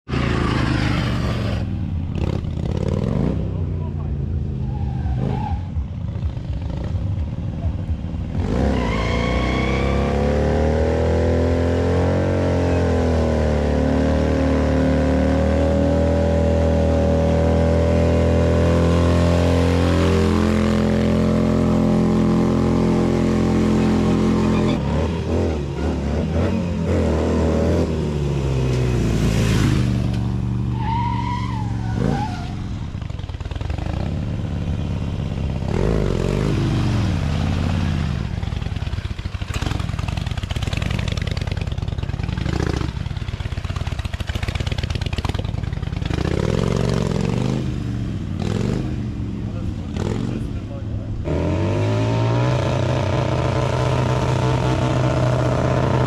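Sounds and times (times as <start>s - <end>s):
motorcycle engine revving: 0.0s - 56.0s
high squeal: 24.4s - 24.9s.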